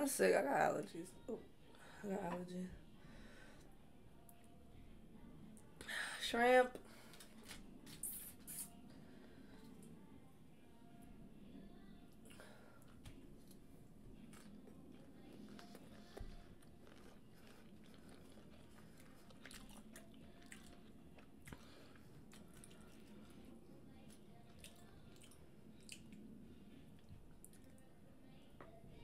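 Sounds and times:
chewing and biting shrimp: 0:14.3 - 0:23.4
wet mouth clicks: 0:24.6 - 0:26.2.

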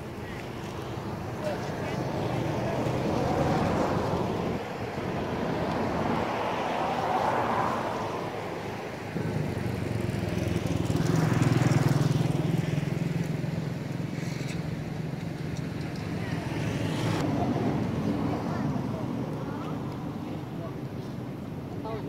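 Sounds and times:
motor vehicles passing: 0:00.0 - 0:22.0.

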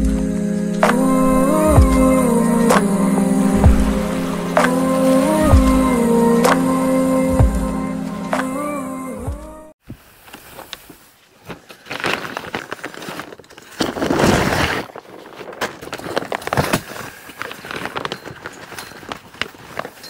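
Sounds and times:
fabric rustling: 0:00.9 - 0:06.6, 0:09.8 - 0:20.0.

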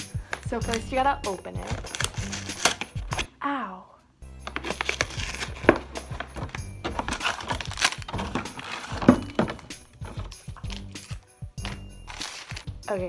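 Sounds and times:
plastic wrapping crinkling: 0:00.2 - 0:03.3, 0:04.4 - 0:12.9
cardboard box tearing: 0:01.7 - 0:03.3, 0:04.5 - 0:11.1, 0:11.7 - 0:12.7.

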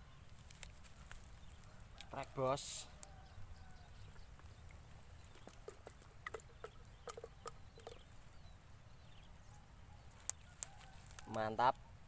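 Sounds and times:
faint water drips: 0:00.3 - 0:08.3.

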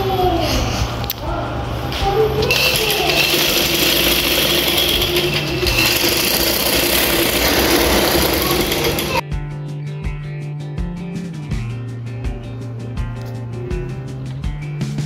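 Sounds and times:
sewing machine whirring: 0:02.5 - 0:09.2.

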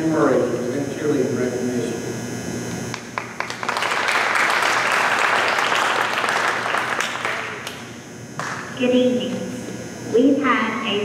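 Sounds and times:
audience applauding: 0:02.9 - 0:07.8.

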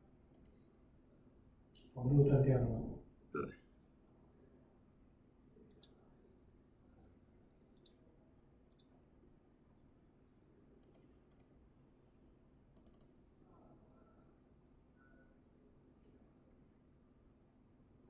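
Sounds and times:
faint computer mouse clicks: 0:00.3 - 0:00.6, 0:05.7 - 0:06.0, 0:07.7 - 0:08.0, 0:08.7 - 0:09.0, 0:10.8 - 0:11.6, 0:12.8 - 0:13.2.

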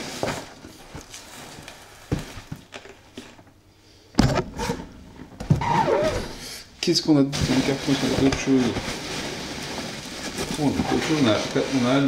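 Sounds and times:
cardboard box rustling: 0:07.4 - 0:12.0.

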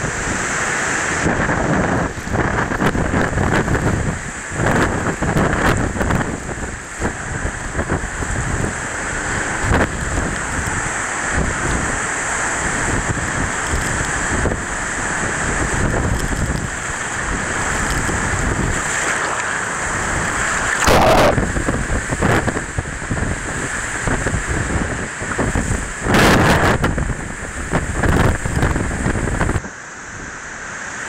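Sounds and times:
rushing breaking water: 0:00.0 - 0:29.6
wind buffeting the microphone: 0:00.0 - 0:29.7
driving rain: 0:00.0 - 0:31.0.

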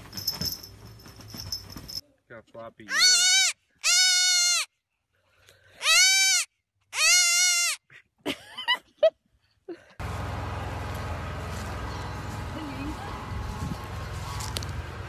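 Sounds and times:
baby goat bleating: 0:02.9 - 0:04.7, 0:05.8 - 0:07.8.

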